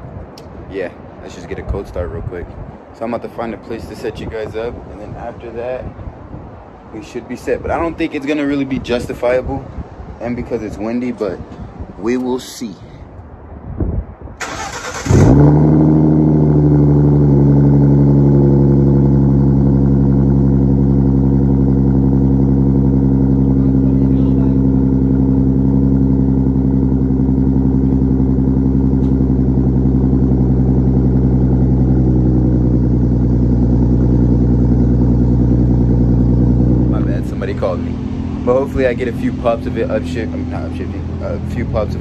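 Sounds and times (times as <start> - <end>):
car engine idling: 14.4 - 42.0.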